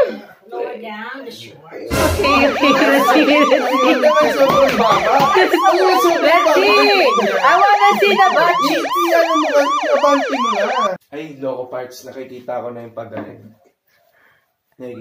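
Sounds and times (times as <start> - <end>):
siren wailing: 1.9 - 11.0.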